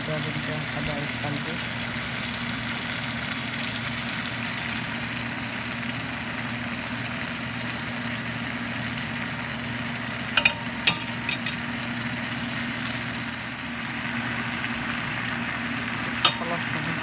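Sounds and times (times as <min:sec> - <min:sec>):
metal tongs knocking on pot: 0:10.4 - 0:11.7, 0:16.2 - 0:16.6.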